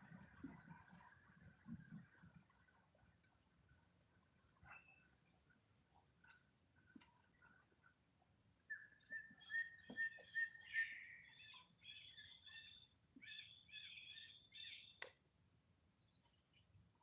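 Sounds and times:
high animal calls and chirps: 8.7s - 15.0s.

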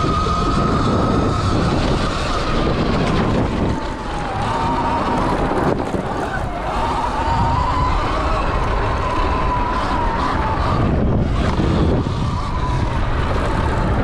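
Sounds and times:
electric motor whining: 0.0s - 14.0s
low steady rumble: 0.0s - 14.0s
wind buffeting microphone: 0.0s - 14.0s.

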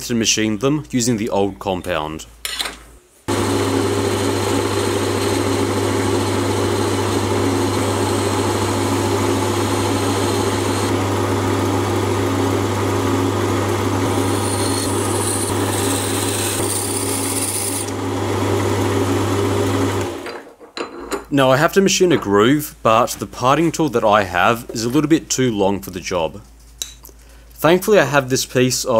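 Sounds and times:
lathe motor humming: 3.3s - 20.2s.

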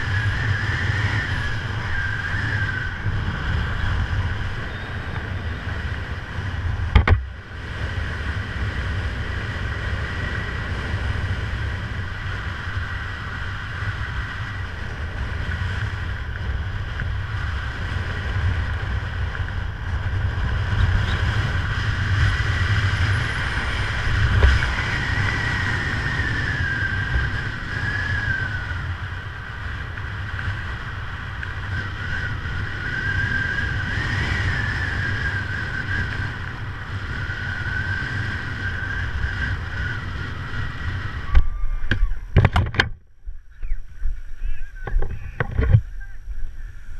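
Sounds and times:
wind rushing over microphone: 0.0s - 46.9s
thin wavering whistle: 4.6s - 5.7s, 37.6s - 42.4s
sharp knocks: 6.9s - 7.2s.

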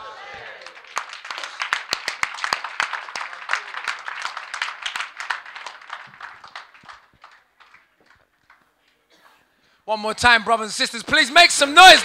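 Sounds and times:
audience applauding: 0.6s - 8.7s, 11.8s - 12.0s.

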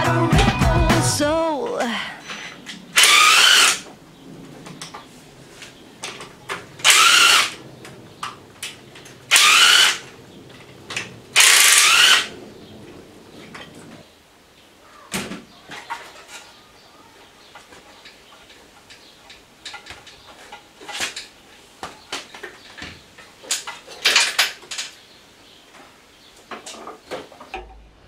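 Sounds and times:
metal tools clicking and clinking: 23.4s - 25.0s.

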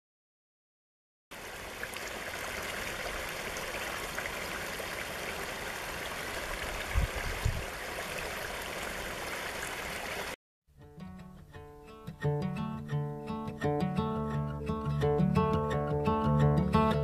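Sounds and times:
stream running over rocks: 1.3s - 10.4s.

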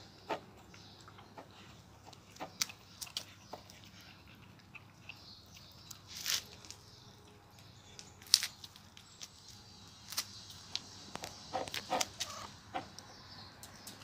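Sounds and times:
hens clucking: 11.2s - 13.1s.

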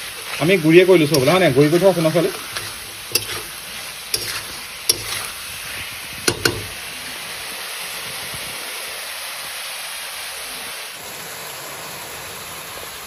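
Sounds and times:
food sizzling in oil: 0.0s - 11.7s
metal spatula clicking on pan: 1.0s - 5.3s, 6.3s - 6.7s.

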